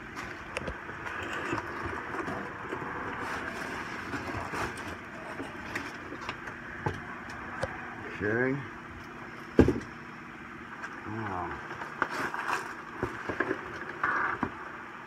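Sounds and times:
cardboard rustling and scraping: 0:00.1 - 0:06.6, 0:11.6 - 0:14.6.

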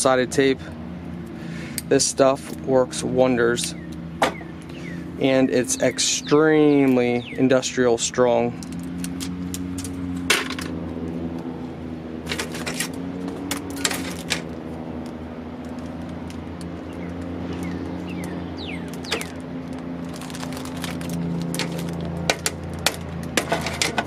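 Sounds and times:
steady low hum: 0:00.0 - 0:24.0
high falling chirps: 0:16.8 - 0:19.6
plastic bag crinkling: 0:19.2 - 0:22.2.

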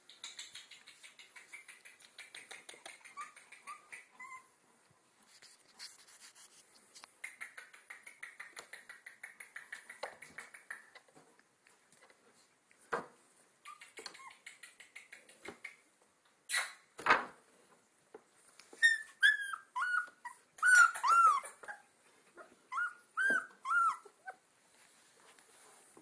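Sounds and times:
puppies whimpering and yipping: 0:02.9 - 0:04.5, 0:18.8 - 0:24.4.

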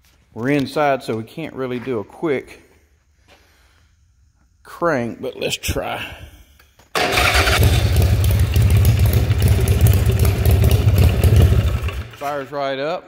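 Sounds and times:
motorcycle engine starting and running: 0:06.9 - 0:12.4.

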